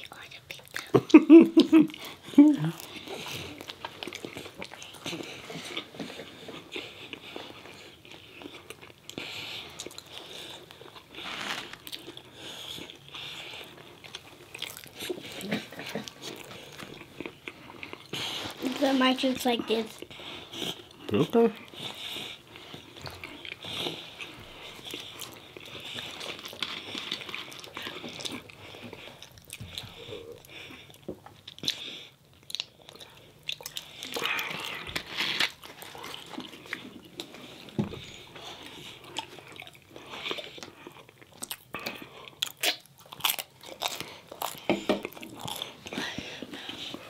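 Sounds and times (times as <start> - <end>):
biting and chewing food: 1.6 - 47.0.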